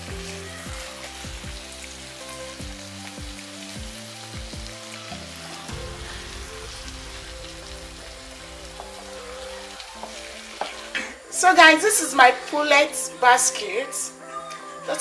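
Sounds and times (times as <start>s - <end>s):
sauce sizzling and bubbling in pan: 0.0s - 11.9s.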